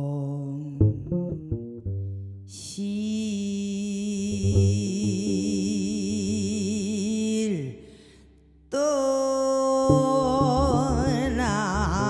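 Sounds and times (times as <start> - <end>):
woman singing with wide vibrato: 0.0 - 1.1, 2.6 - 8.0, 8.7 - 12.0
plucked double bass: 0.0 - 3.0, 4.2 - 6.9, 9.9 - 12.0.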